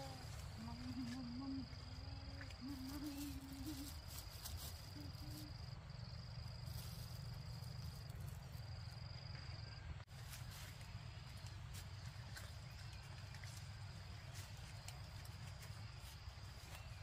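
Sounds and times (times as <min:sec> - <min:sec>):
insect trilling: 0:01.4 - 0:09.8.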